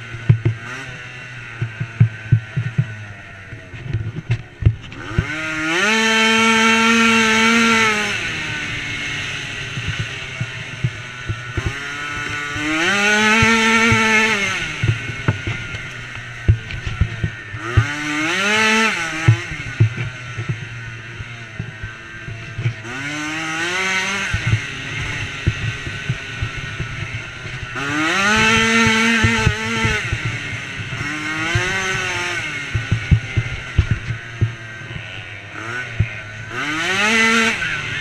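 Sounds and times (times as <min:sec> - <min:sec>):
knocks and rattles over rough ground: 0:00.0 - 0:38.0
quad engine revving: 0:00.0 - 0:38.0.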